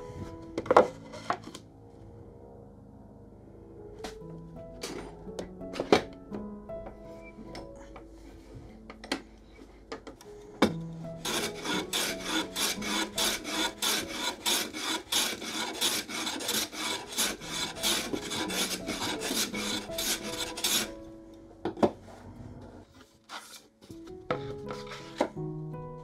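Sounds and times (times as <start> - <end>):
hand plane scraping strokes: 11.2 - 21.0, 23.3 - 23.6, 24.4 - 25.4.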